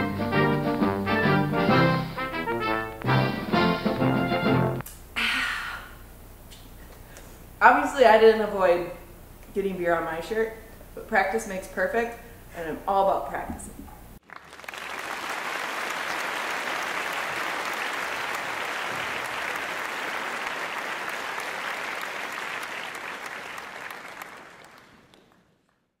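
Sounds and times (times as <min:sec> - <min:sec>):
crowd applauding: 0:14.2 - 0:26.0.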